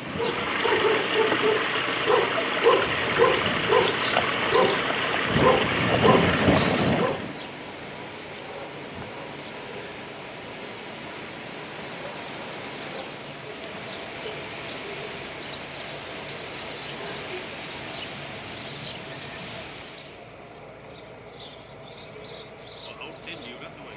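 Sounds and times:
dog barking: 0.2 - 6.3, 6.9 - 7.3
stream splashing over stones: 0.3 - 7.0.

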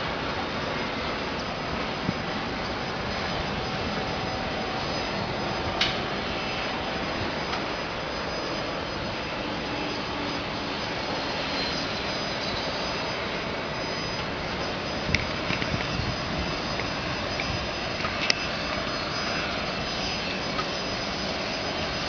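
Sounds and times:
distant jet engines roaring: 0.0 - 22.0
faint whine: 0.0 - 22.0.

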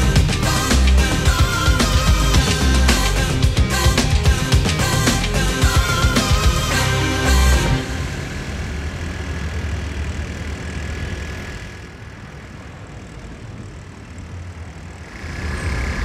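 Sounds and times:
scooters and cars running: 6.9 - 16.0.

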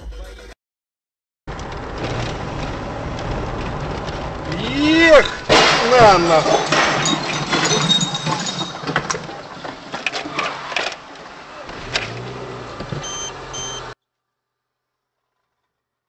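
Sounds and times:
car cabin road noise: 1.5 - 14.0
short electronic beeps: 13.0 - 14.0.

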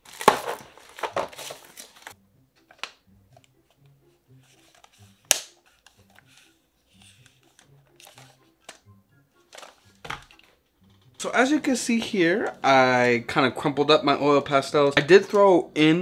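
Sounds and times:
pastel sticks clattering in box: 0.0 - 2.2
faint background music: 0.0 - 16.0.

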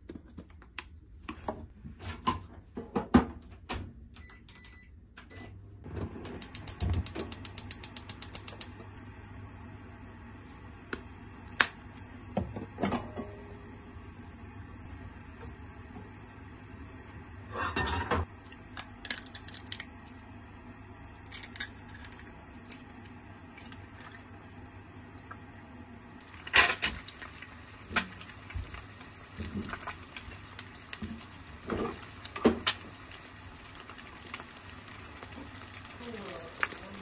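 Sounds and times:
eggs cracking against pan: 6.3 - 8.8, 18.3 - 20.3, 21.0 - 24.4, 26.2 - 37.0
eggs sizzling in pan: 6.4 - 37.0.

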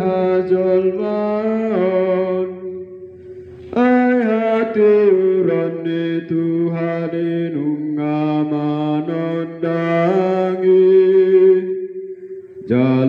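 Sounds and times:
man chanting: 0.0 - 11.9, 12.6 - 13.0.

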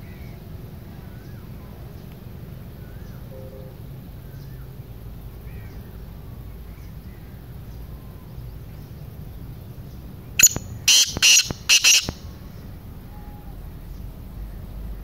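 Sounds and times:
francolin calling rapid notes: 3.3 - 3.9, 10.4 - 12.3
faint bird chirps: 9.9 - 12.2, 13.0 - 14.6.

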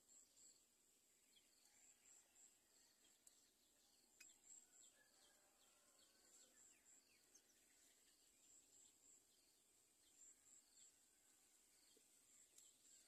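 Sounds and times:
faint bird chirps: 0.0 - 13.0
faint click: 3.1 - 3.4, 4.2 - 4.4, 12.5 - 12.8.

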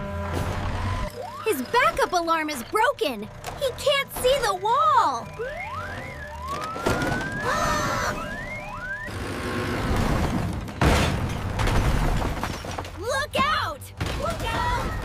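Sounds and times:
cartoon siren-like wail: 4.8 - 9.1
rumbling crash of collapsing wall: 9.2 - 13.0.

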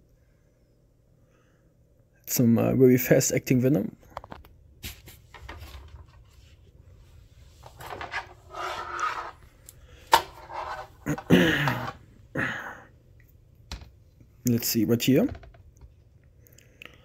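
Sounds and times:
scraping and rubbing: 4.8 - 12.0.

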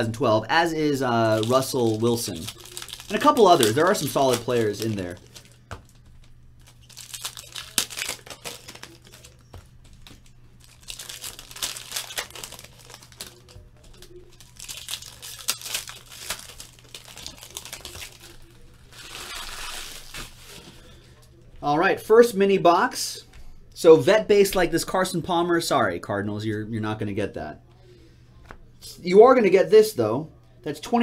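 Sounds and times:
foil wrappers crinkling and tearing: 0.8 - 21.1.

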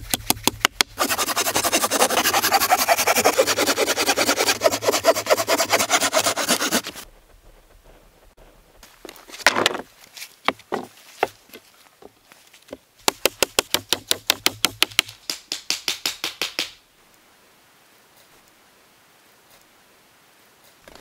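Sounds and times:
fast sharp taps on wood: 13.0 - 16.8.

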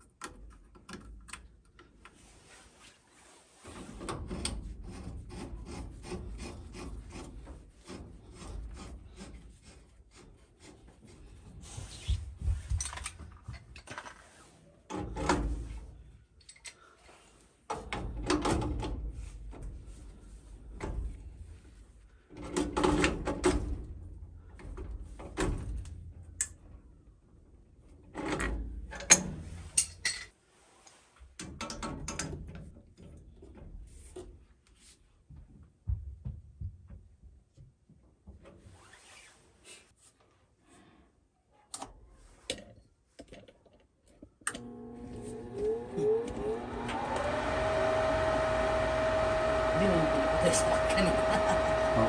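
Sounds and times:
parts and tools clattering: 12.8 - 14.3, 28.2 - 30.4
electric motor humming and whining: 44.6 - 52.0.

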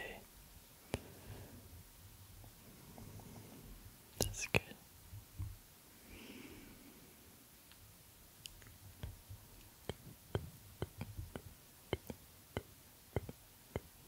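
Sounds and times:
sharp clicks near microphone: 4.2 - 4.7
soft low bumps: 5.1 - 5.6, 8.8 - 13.9.

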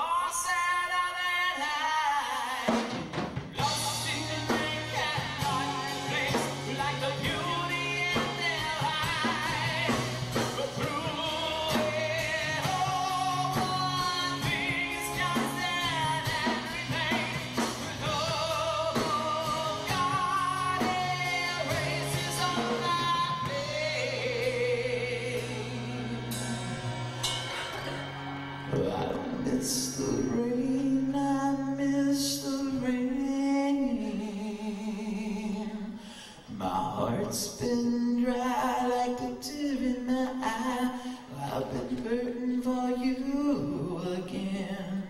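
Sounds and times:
man singing rock ballad: 0.0 - 3.0, 3.6 - 27.9, 28.6 - 35.9, 36.5 - 45.0
band accompaniment: 2.5 - 31.4.

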